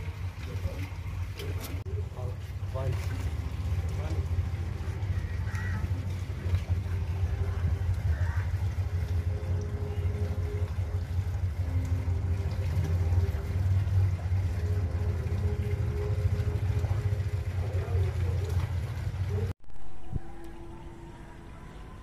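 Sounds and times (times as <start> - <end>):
steady low rumble: 0.0 - 22.0
faint tone: 19.2 - 22.0.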